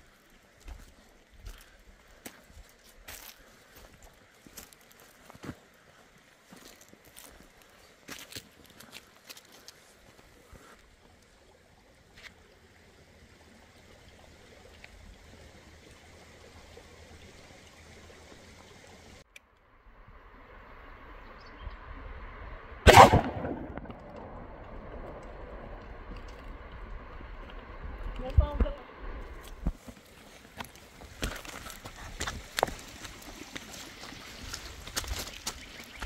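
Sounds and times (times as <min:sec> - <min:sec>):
outdoor background noise: 0:00.0 - 0:36.0
loud sharp bang: 0:22.9 - 0:24.5.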